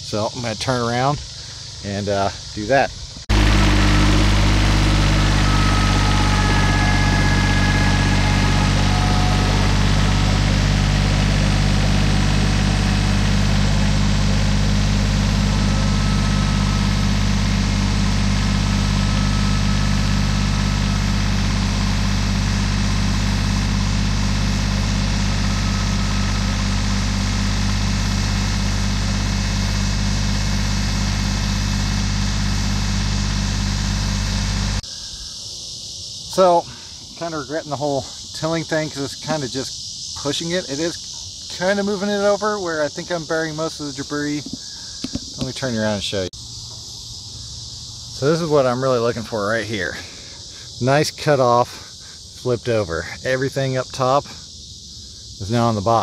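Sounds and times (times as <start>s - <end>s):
tractor diesel engine running: 3.2s - 34.8s.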